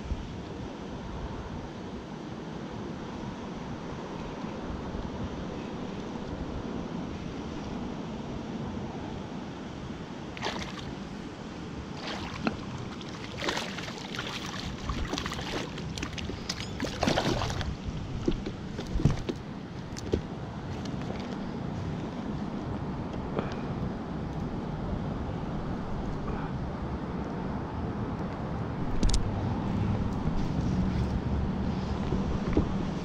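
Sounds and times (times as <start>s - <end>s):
fish splashing at water surface: 10.4s - 11.0s, 12.0s - 17.8s.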